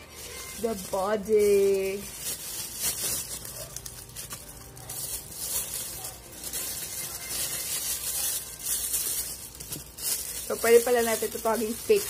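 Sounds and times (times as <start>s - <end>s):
packaging rustling and crackling: 0.0s - 12.0s.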